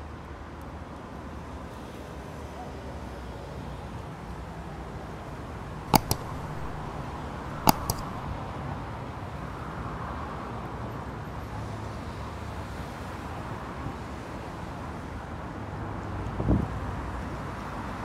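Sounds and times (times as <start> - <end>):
sharp double clicks: 5.9 - 8.4.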